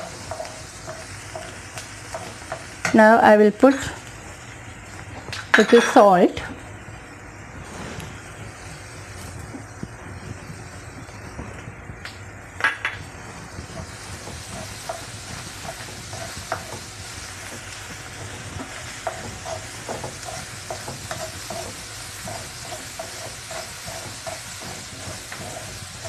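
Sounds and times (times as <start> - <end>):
spatula scraping pan: 0.0 - 3.0, 13.1 - 26.0
food sizzling in oil: 0.0 - 11.8, 12.4 - 26.0.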